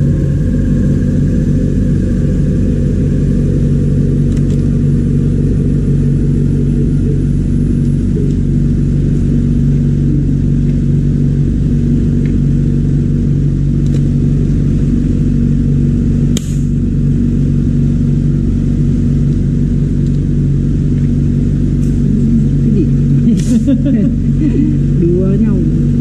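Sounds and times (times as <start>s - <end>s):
low mechanical hum of machine: 0.0s - 26.0s
sharp click: 16.4s - 16.7s.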